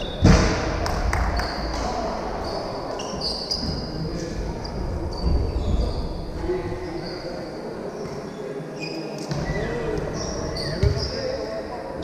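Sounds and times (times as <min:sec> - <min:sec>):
indistinct voices: 0:00.0 - 0:12.0
sneakers squeaking on court: 0:08.0 - 0:11.4.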